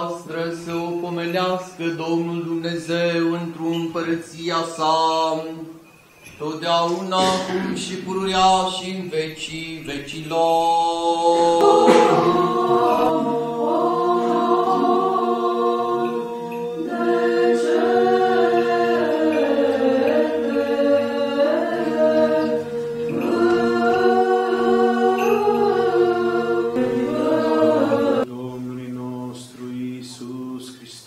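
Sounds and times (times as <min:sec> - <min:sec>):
choir singing chant: 0:06.4 - 0:31.0.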